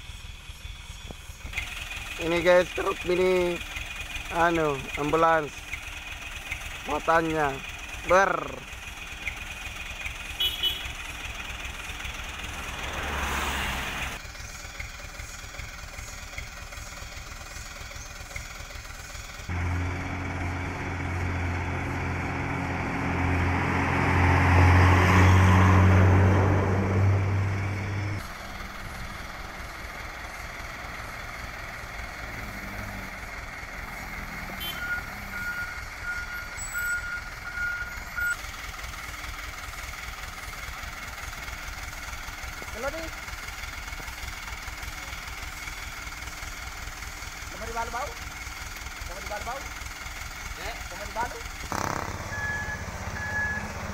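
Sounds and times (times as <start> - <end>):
diesel trucks passing: 0.0 - 53.9
heavy truck engine droning: 0.0 - 53.9.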